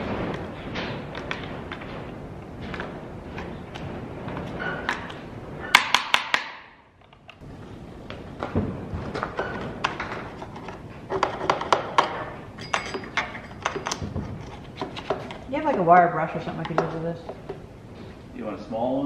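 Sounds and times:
metal tools clinking and knocking: 0:11.1 - 0:15.1.

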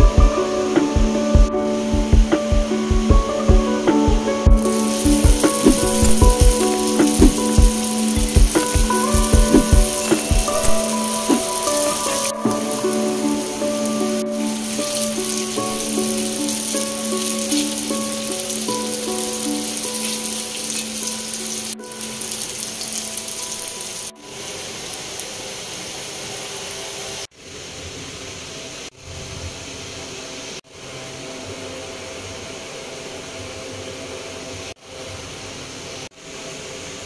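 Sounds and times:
potatoes sizzling in oil: 0:04.6 - 0:27.2.

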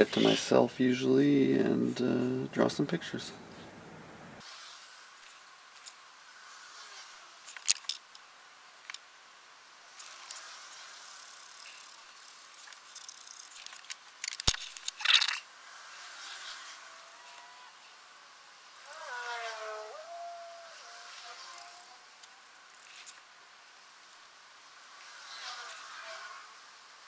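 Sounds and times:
plastic marker clicks and rattles: 0:12.7 - 0:15.4.

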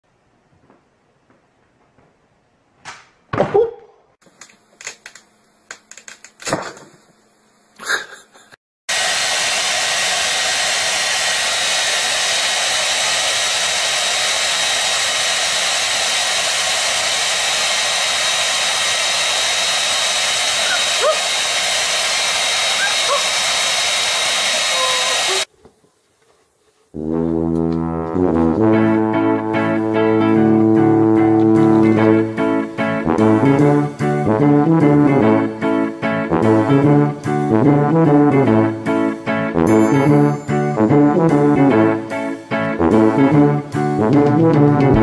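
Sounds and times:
hair dryer blowing: 0:08.9 - 0:25.5.

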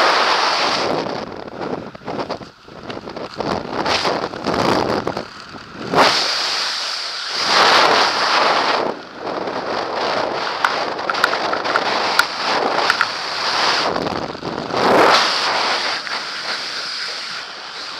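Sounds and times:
air rushing over microphone: 0:00.0 - 0:17.9
small clicks: 0:10.6 - 0:13.2.

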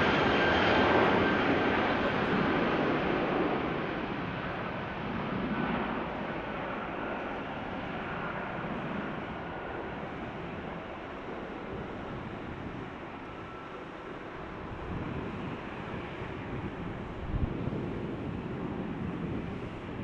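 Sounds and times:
jet engines rumbling: 0:00.0 - 0:20.0.

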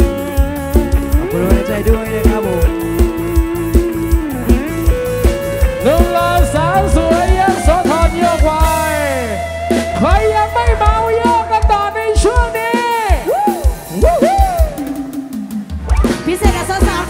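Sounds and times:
kick-drum beat: 0:00.0 - 0:09.0, 0:09.9 - 0:17.0
amplified plucked-string lead: 0:00.0 - 0:12.5.

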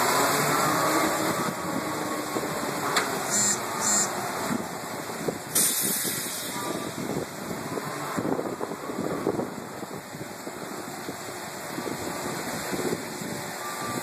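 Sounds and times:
swing ride rushing noise: 0:00.0 - 0:14.0
short hissing bursts: 0:03.2 - 0:04.2, 0:05.5 - 0:06.6.

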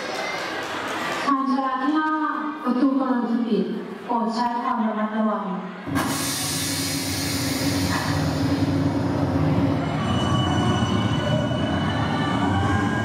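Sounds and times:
train rumble and rattle: 0:05.9 - 0:13.0
high wheel squeal: 0:09.7 - 0:13.0.

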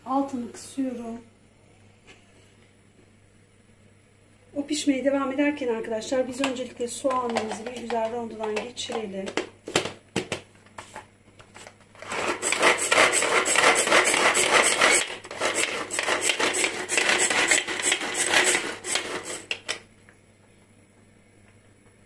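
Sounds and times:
food chopper chopping: 0:12.0 - 0:19.7.

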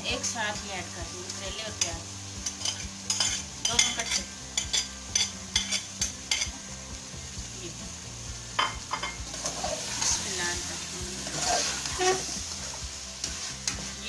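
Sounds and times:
faint sizzle from pot: 0:00.0 - 0:14.0
utensil scraping pot and plate: 0:02.4 - 0:06.6, 0:11.2 - 0:12.4.

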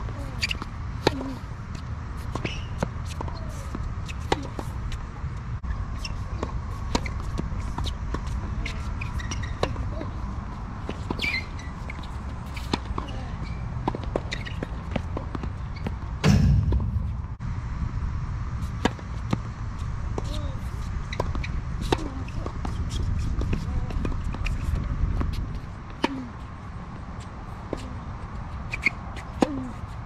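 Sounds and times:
tennis balls bouncing and struck: 0:00.1 - 0:05.0, 0:06.0 - 0:17.4, 0:20.1 - 0:26.5, 0:28.7 - 0:29.9
footsteps on court: 0:10.8 - 0:17.4
steady low rumble: 0:16.2 - 0:21.9.

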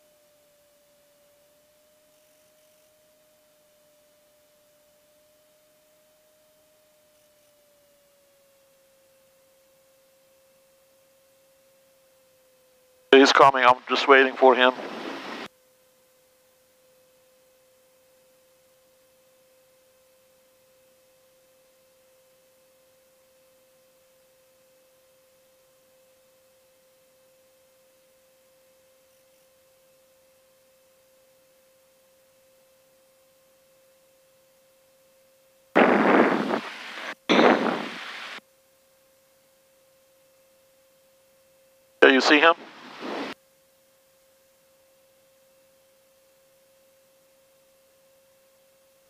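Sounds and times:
faint electrical tone: 0:00.0 - 0:49.0
loud rushing noise bursts: 0:35.8 - 0:38.4, 0:42.3 - 0:43.4.

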